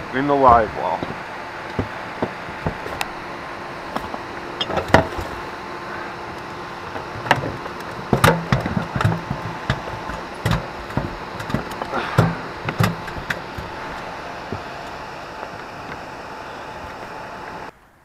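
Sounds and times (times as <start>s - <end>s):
knocks against aluminium boat: 7.2s - 13.7s.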